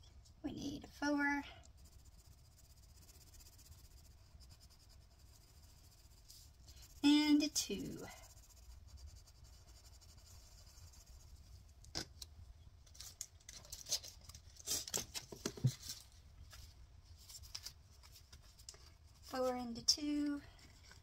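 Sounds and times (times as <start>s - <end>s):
hands rustling on laminated paper: 12.8s - 19.7s.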